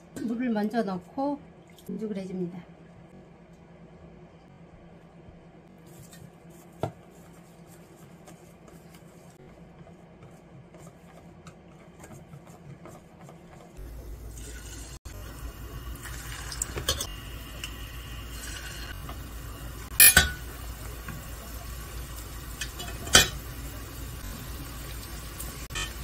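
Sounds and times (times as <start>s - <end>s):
food sizzling in hot oil: 13.8s - 26.0s.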